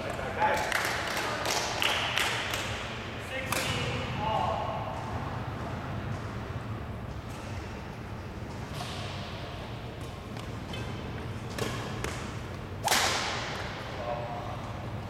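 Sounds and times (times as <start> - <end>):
rackets striking shuttlecock: 8.5 - 13.9.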